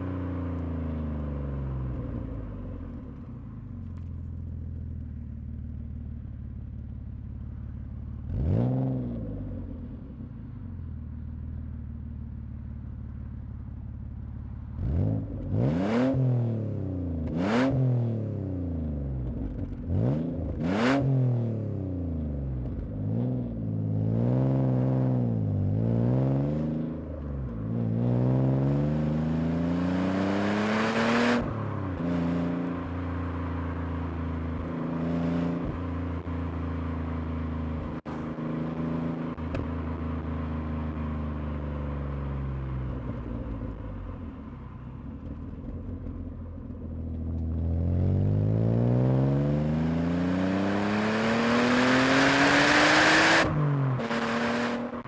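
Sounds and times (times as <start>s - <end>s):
car engine revving from inside: 8.3s - 9.4s, 14.8s - 18.1s, 47.4s - 55.0s.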